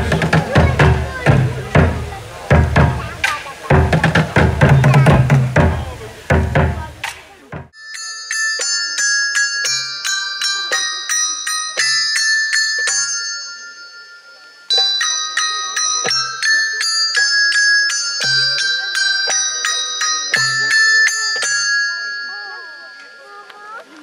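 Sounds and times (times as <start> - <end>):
low drum beat: 0.0 - 7.8
ringing bell-like metal notes: 7.7 - 24.0.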